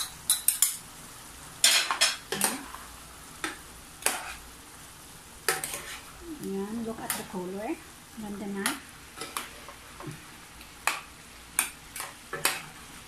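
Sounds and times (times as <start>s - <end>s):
metal spoon scraping a pan: 4.0s - 4.4s, 5.5s - 6.1s, 11.6s - 12.8s.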